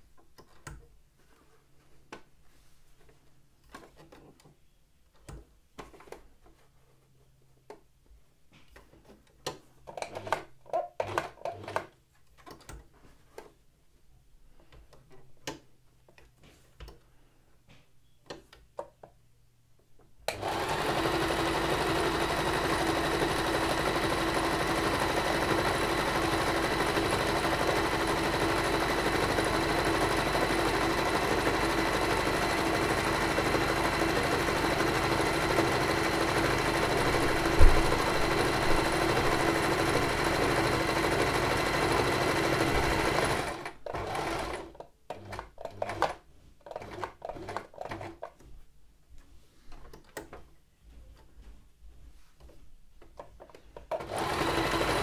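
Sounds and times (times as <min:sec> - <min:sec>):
sewing machine running: 0:20.3 - 0:48.1, 0:53.9 - 0:55.0.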